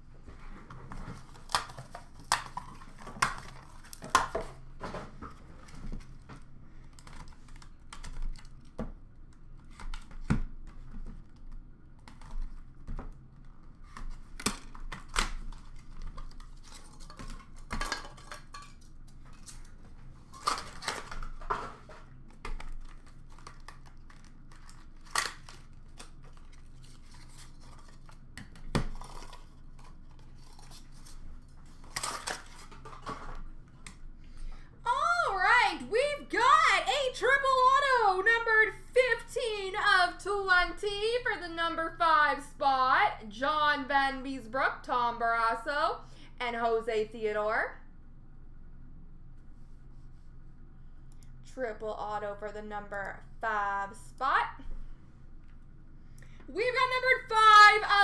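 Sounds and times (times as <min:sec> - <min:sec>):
faint steady hum: 0:00.0 - 0:58.0
handling cardboard and plastic cards: 0:05.3 - 0:34.3.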